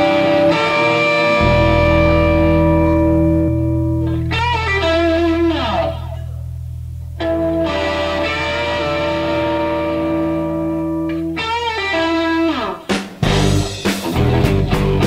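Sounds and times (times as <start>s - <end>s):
distorted electric guitars: 0.0s - 15.0s
bass note: 1.0s - 11.3s.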